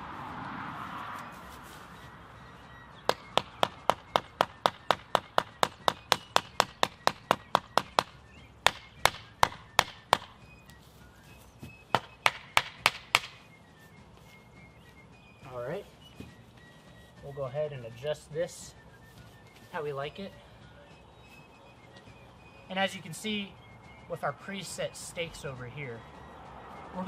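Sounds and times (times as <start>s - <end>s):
wooden block knocking tent stake: 3.1s - 10.3s, 11.9s - 13.4s.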